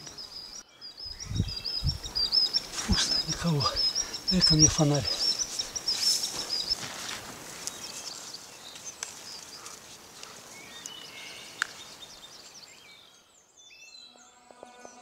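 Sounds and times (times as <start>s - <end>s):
faint bird chirps: 0.0s - 6.8s.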